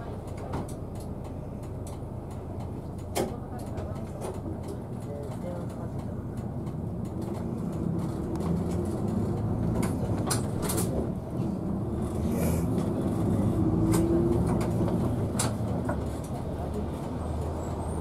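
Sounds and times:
bus diesel engine: 0:00.0 - 0:18.0
sharp clicks and rattles: 0:00.2 - 0:11.0.

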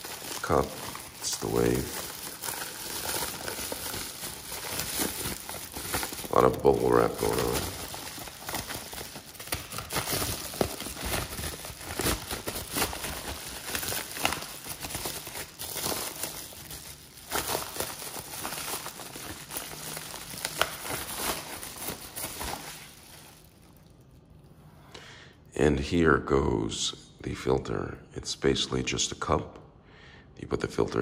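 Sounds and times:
bubble wrap crinkling: 0:00.0 - 0:24.3.

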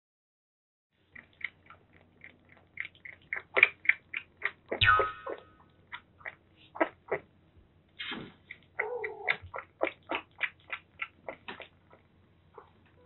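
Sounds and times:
kitten sucking from bottle: 0:01.1 - 0:04.8.

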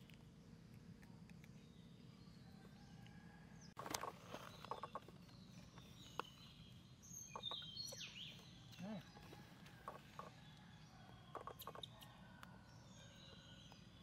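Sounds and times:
high bird chirps: 0:05.8 - 0:09.0.

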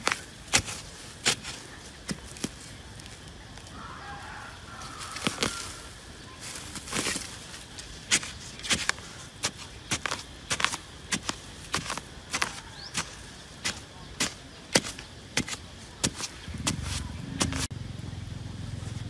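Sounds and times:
digging tool striking hard earth: 0:00.0 - 0:02.6, 0:08.0 - 0:17.7.

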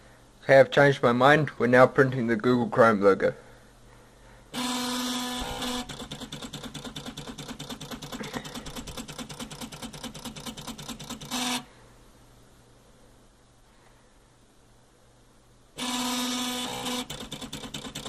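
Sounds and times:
stepper motors buzzing and pulsing: 0:04.6 - 0:11.6, 0:15.8 - 0:18.0.

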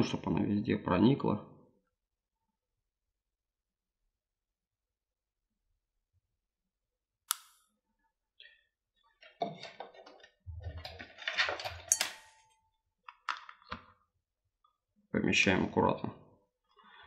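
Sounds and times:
sharp click: 0:07.3 - 0:07.7.

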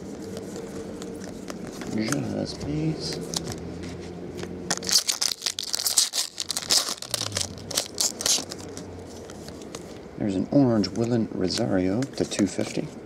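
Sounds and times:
foil wrapper tearing and crinkling: 0:04.7 - 0:08.9.

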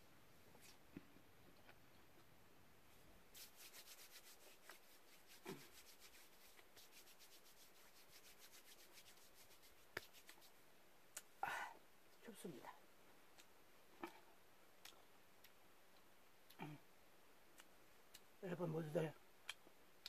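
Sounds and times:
palms rubbing together: 0:03.3 - 0:10.6.

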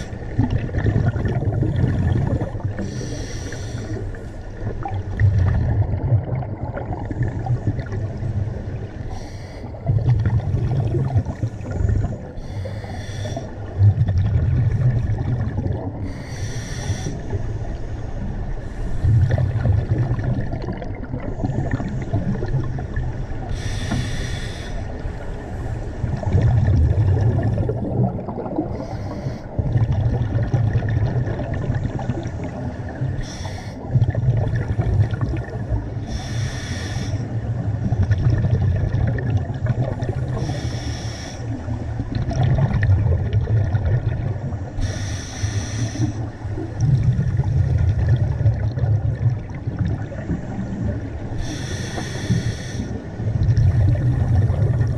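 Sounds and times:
bubbling exhalation rumble: 0:00.0 - 0:08.3, 0:09.1 - 0:17.4, 0:19.0 - 0:24.7, 0:25.5 - 0:41.0, 0:41.6 - 0:54.9
regulator inhalation hiss: 0:02.8 - 0:04.1, 0:09.1 - 0:09.7, 0:12.4 - 0:13.5, 0:16.1 - 0:17.3, 0:23.5 - 0:24.9, 0:28.8 - 0:29.5, 0:33.2 - 0:33.8, 0:36.1 - 0:37.3, 0:40.4 - 0:41.6, 0:44.8 - 0:46.2, 0:51.4 - 0:53.0.

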